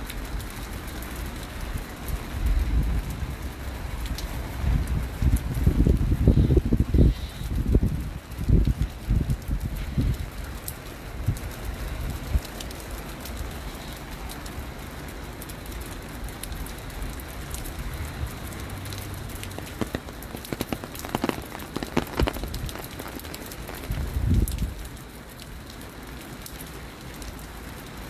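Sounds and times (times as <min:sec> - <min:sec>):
rain falling: 0:00.0 - 0:28.0
sharp crackling taps: 0:18.8 - 0:24.9.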